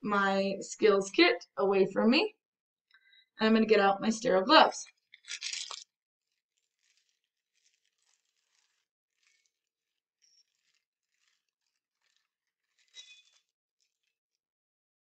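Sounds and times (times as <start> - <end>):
paper wrapper crinkling: 5.2 - 14.2.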